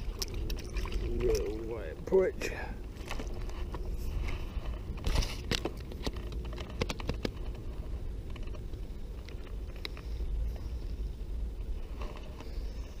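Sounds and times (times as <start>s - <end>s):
fishing gear clicks and knocks: 0.0s - 2.1s, 2.8s - 10.4s
wind rumble on microphone: 0.0s - 13.0s.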